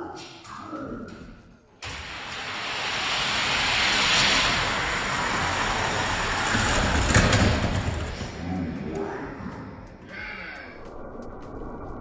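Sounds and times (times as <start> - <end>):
toy cars rolling on plastic track: 1.8 - 8.4.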